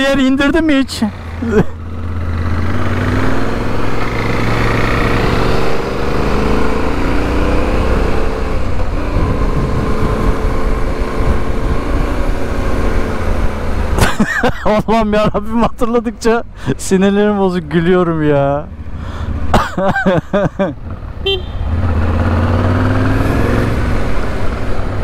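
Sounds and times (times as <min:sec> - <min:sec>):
motorcycle engine accelerating: 0:00.0 - 0:14.2, 0:20.7 - 0:25.0
wind on microphone: 0:08.8 - 0:12.6.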